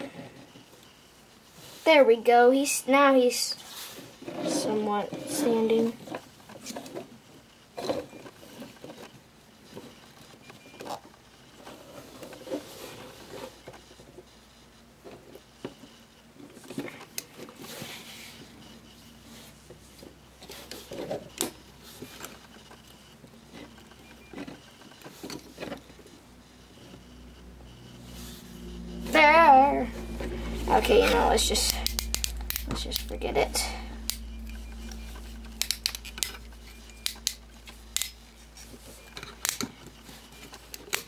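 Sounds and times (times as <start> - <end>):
plastic toy parts clicking and rattling: 35.5 - 38.3.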